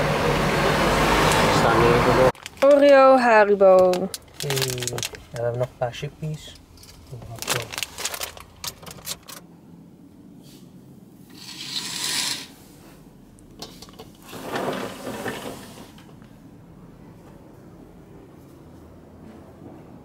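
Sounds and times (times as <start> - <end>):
snack packet crinkling: 2.4 - 3.0, 3.8 - 5.7, 6.9 - 9.4
packet rustling: 2.4 - 5.8, 6.4 - 9.4.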